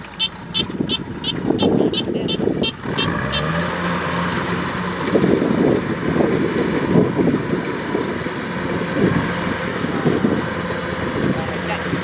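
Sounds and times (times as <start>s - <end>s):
combine harvester engine drone: 0.0s - 12.0s
wind buffeting microphone: 0.6s - 2.9s, 5.0s - 12.0s.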